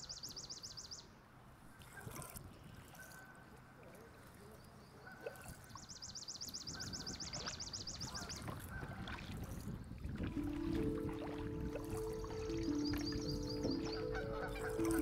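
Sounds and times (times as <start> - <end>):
water rushing and paddling: 6.8 - 15.0
songbird dry trill: 10.3 - 15.0.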